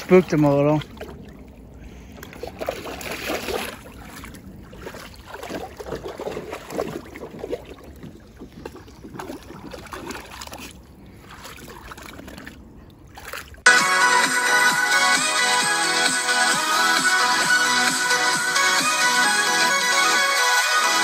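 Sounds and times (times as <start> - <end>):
dog splashing in water: 0.0 - 13.6.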